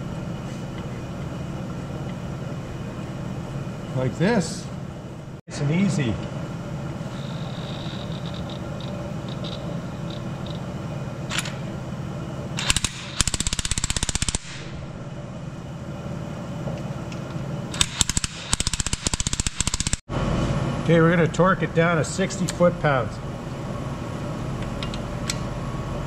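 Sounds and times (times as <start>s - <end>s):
low hum: 14.4s - 17.8s.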